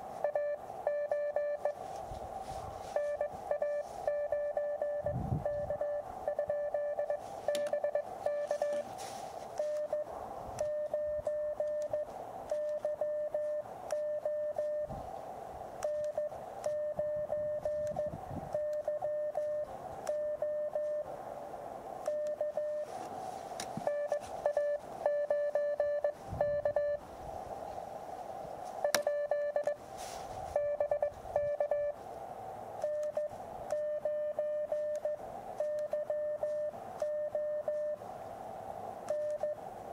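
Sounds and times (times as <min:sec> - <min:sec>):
receiver hiss: 0:00.0 - 0:39.9
morse code beeps: 0:00.2 - 0:01.8, 0:02.9 - 0:08.9, 0:09.6 - 0:14.9, 0:15.8 - 0:21.1, 0:22.1 - 0:22.9, 0:23.8 - 0:27.0, 0:28.8 - 0:29.8, 0:30.5 - 0:32.0, 0:32.8 - 0:38.0, 0:39.1 - 0:39.6.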